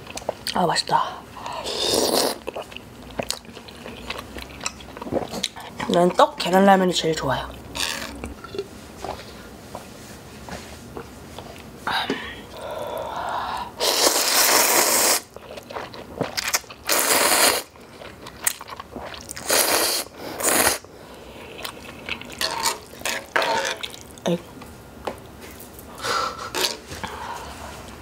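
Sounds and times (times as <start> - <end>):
person slurping noodles: 1.6 - 2.6, 13.7 - 15.3, 16.9 - 17.7, 19.0 - 20.8, 21.4 - 24.0.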